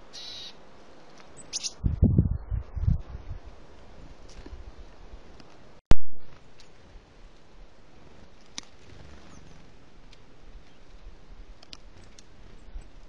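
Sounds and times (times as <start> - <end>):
faint sharp ticks and rustles: 10.0 - 13.0.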